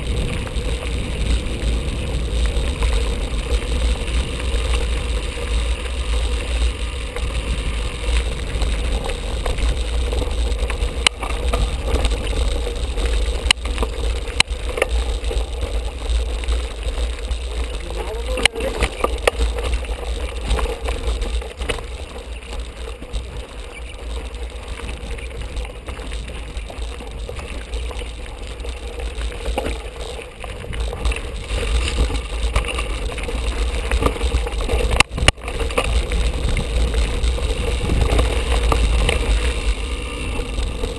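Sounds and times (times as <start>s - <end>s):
bike knocking on rocks: 0.0s - 40.9s
bike rattling: 0.0s - 40.9s
tyres crunching over stones: 0.0s - 40.9s
wind buffeting microphone: 0.0s - 40.9s.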